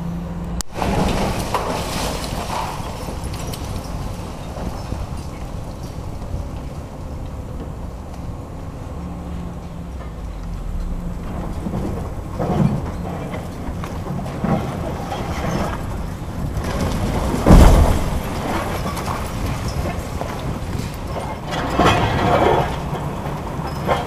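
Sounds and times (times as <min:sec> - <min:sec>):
diesel engine rumbling: 0:00.0 - 0:24.0
concrete breaking crash: 0:00.7 - 0:06.8, 0:11.2 - 0:24.0
concrete crunching knocks: 0:10.0 - 0:24.0.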